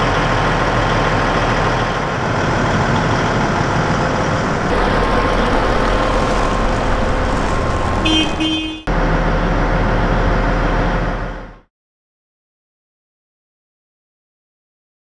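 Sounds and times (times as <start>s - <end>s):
diesel engine humming: 0.0s - 11.7s
vehicle horn toots: 7.9s - 8.9s.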